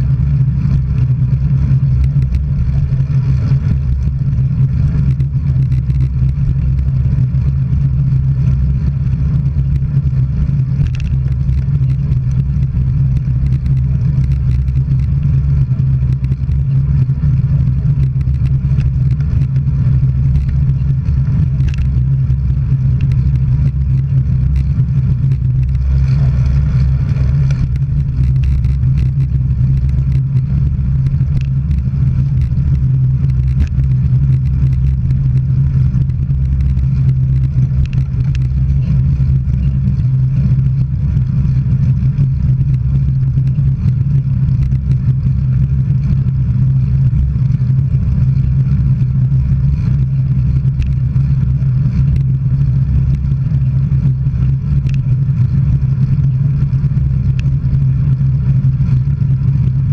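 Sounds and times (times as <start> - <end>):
road and wind rumble: 0.0 - 59.9.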